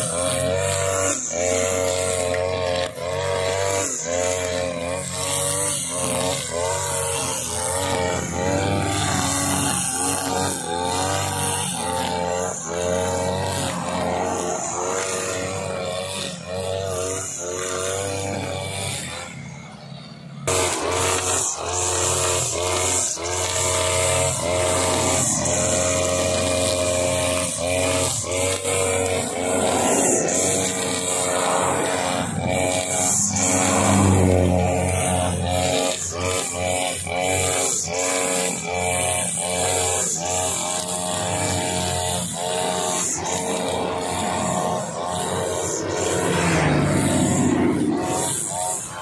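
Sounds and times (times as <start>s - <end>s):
brush cutter engine cutting grass: 0.0s - 49.0s.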